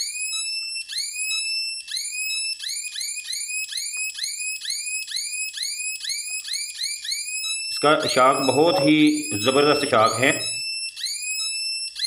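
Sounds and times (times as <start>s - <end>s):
rising electronic chirps: 7.8s - 10.6s.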